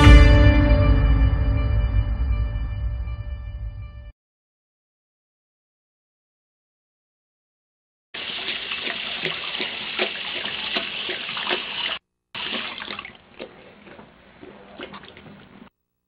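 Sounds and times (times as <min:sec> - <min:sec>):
faucet running into sink: 0:08.2 - 0:15.6
dog drinking splashes: 0:08.2 - 0:15.7.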